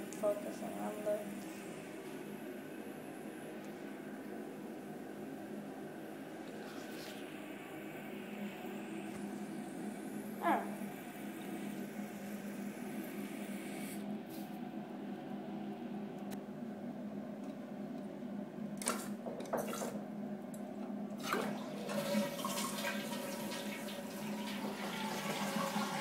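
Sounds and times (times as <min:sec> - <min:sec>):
water filling toilet tank: 0:18.8 - 0:20.0, 0:21.2 - 0:26.0.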